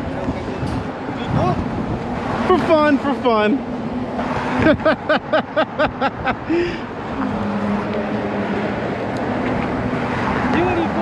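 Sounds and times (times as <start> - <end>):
traffic noise: 0.0 - 11.0
person laughing: 4.6 - 7.3.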